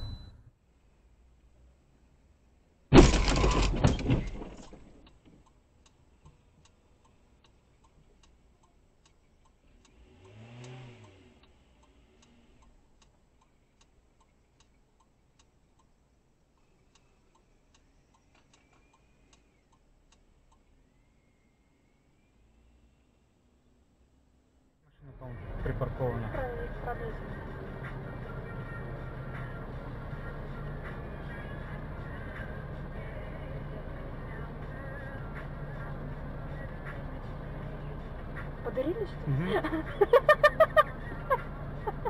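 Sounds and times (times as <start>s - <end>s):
car crash impact: 2.9s - 5.0s
faint regular ticking: 5.0s - 20.8s
engine revving: 9.6s - 12.8s, 25.1s - 42.0s.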